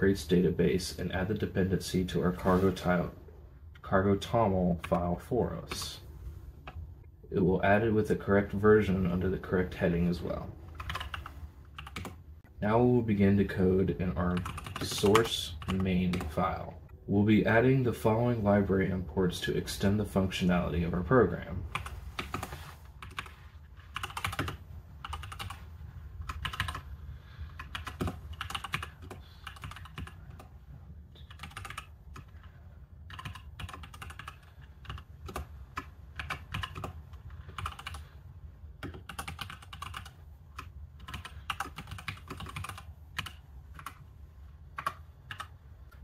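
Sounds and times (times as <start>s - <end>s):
low steady hum: 0.0s - 46.0s
computer keyboard typing: 10.8s - 12.2s, 14.3s - 16.4s, 21.7s - 25.6s, 26.3s - 26.9s, 27.6s - 30.5s, 31.1s - 38.1s, 38.8s - 44.0s, 44.7s - 46.0s.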